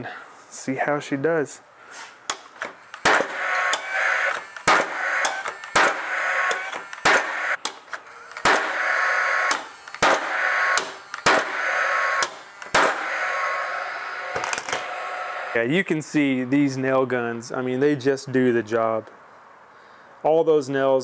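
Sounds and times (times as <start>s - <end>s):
nail gun shots: 2.3s - 13.5s
nail gun whir: 2.3s - 15.6s.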